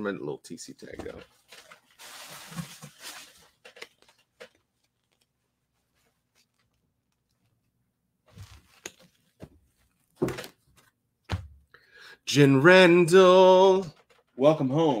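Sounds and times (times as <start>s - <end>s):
paper tag clicks and rustles: 1.1s - 5.3s, 13.9s - 14.4s.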